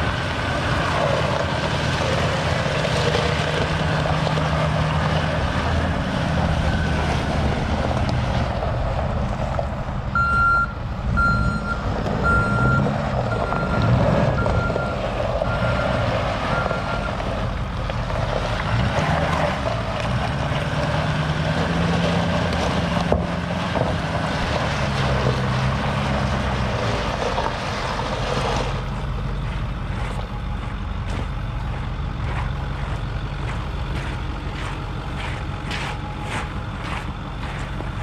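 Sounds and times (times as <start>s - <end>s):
low engine drone: 0.0s - 38.0s.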